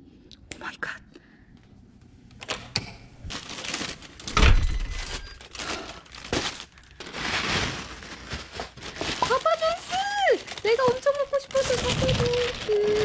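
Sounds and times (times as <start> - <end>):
plastic bag rustling: 3.2 - 13.0.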